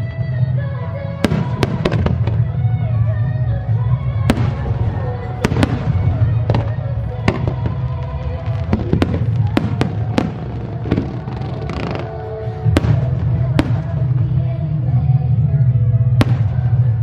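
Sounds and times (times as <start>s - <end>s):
music playing: 0.0s - 17.0s
fireworks bangs: 1.2s - 2.7s, 4.2s - 14.5s, 16.2s - 17.0s.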